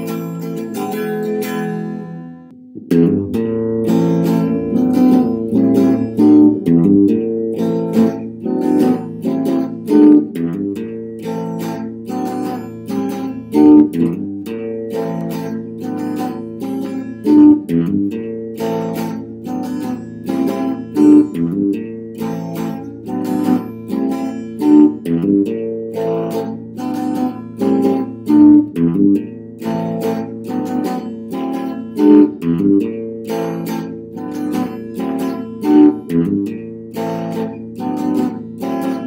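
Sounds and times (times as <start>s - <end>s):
strummed guitar: 0.0s - 39.0s.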